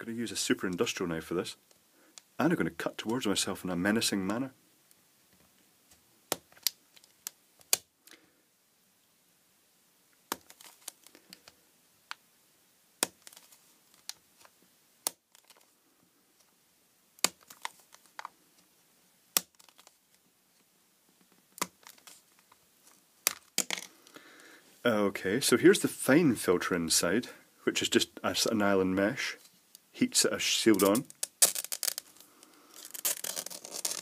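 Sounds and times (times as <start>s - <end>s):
plastic cracking and clicking: 13.0s - 15.7s, 17.2s - 18.3s, 19.4s - 20.0s, 30.7s - 34.0s
knife scraping plastic: 30.8s - 34.0s.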